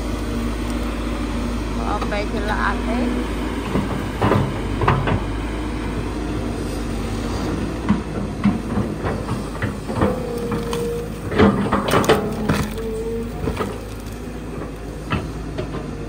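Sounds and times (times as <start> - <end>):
excavator engine and hydraulic drone: 0.0 - 16.0
bucket knocks and clanks: 8.4 - 13.9.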